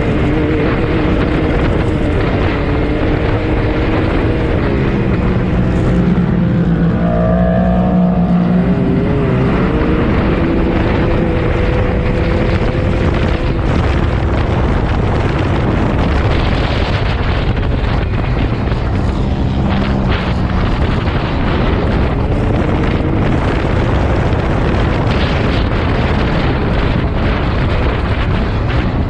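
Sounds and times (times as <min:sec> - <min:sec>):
off-road vehicle engine running hard: 0:00.0 - 0:29.0
wind buffeting microphone: 0:00.0 - 0:29.0.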